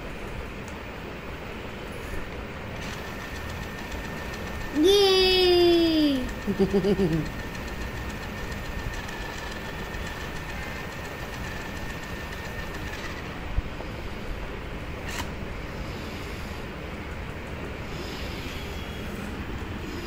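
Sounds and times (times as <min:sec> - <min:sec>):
toy truck motors whirring: 0:02.7 - 0:13.5.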